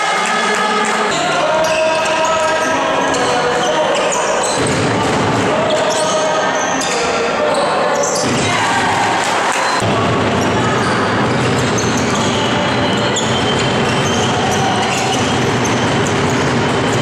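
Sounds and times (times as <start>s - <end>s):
echoing hall noise: 0.0s - 17.0s
basketball bouncing on wooden court: 4.5s - 6.1s, 9.8s - 17.0s.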